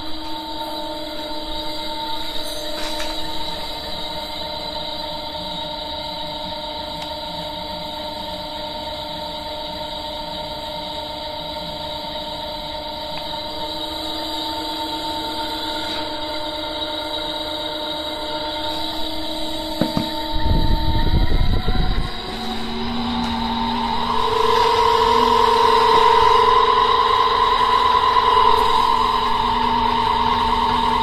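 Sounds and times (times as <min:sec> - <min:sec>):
gearmotor humming with whine: 0:00.0 - 0:31.0.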